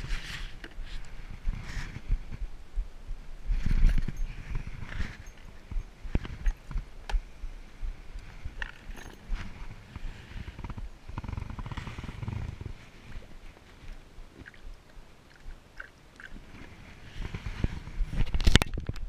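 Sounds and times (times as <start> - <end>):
water sloshing: 13.1 - 17.1.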